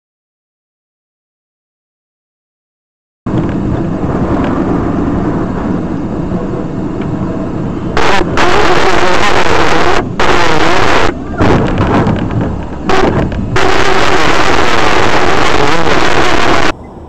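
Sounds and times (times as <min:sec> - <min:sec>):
engine and road rumble: 0:03.3 - 0:17.0
loud harsh noise: 0:03.8 - 0:17.0.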